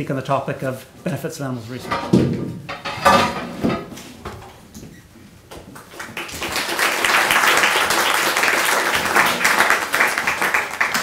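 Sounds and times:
person speaking: 0.0 - 2.1
audience applauding: 5.8 - 11.0.

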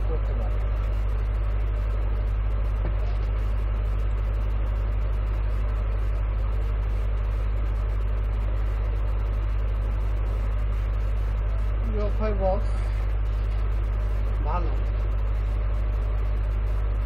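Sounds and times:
loud low hum: 0.0 - 17.0.

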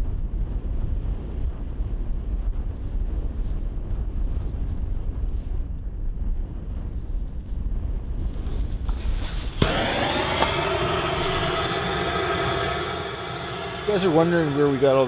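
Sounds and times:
wind rumble on microphone: 0.0 - 15.0
torch click: 8.9 - 14.6
gas torch flame hissing: 8.9 - 15.0.

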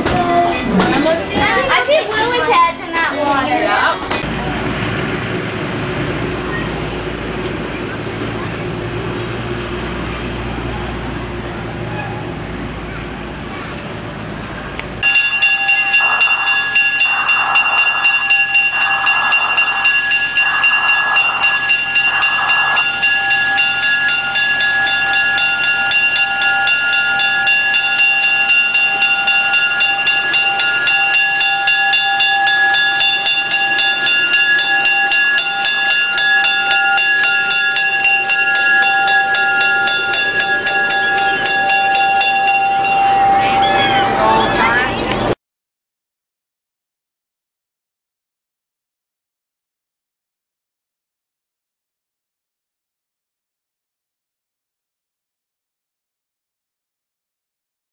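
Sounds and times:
diesel locomotive passing: 0.0 - 45.4.

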